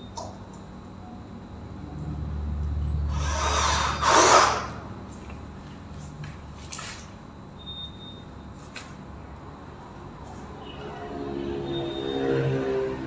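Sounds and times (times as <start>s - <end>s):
power drill bursts: 3.1s - 4.8s.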